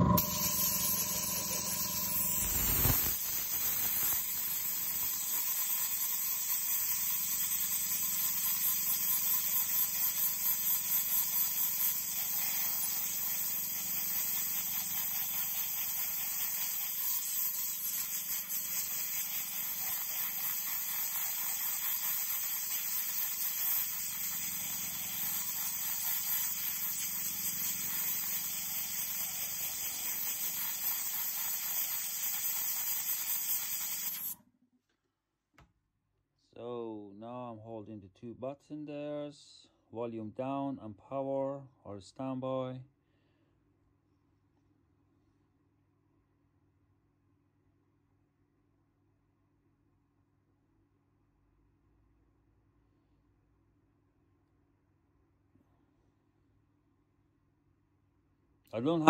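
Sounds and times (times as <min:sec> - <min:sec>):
compressed air hissing: 0:00.1 - 0:34.4.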